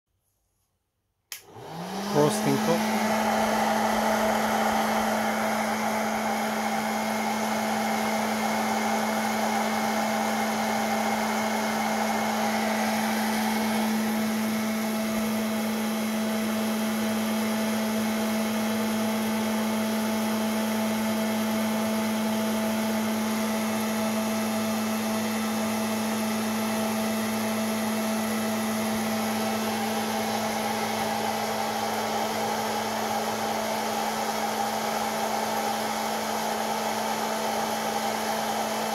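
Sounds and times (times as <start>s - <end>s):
popcorn maker blower humming: 1.3s - 38.9s
rush of hot air: 1.5s - 7.8s.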